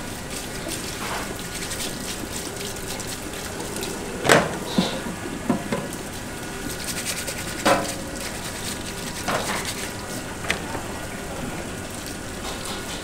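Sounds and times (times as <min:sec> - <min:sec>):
tap water running into sink: 0:00.0 - 0:13.0
crab being scrubbed: 0:00.2 - 0:10.6.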